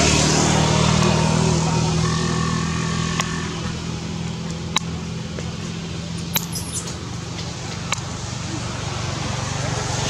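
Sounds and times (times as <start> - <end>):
sharp clicks: 6.2 - 7.0
very high squeaks: 6.2 - 7.0.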